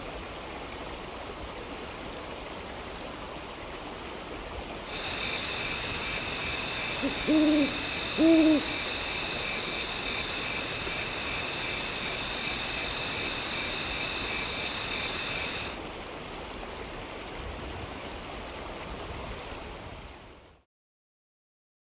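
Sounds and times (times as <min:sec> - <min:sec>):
rushing water: 0:00.0 - 0:20.6
high steady trills: 0:04.9 - 0:15.8.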